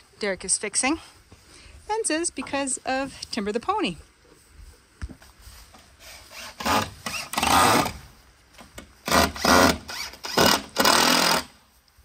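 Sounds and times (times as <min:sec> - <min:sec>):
drill driving screws into wood: 0:06.0 - 0:08.0, 0:08.8 - 0:11.6.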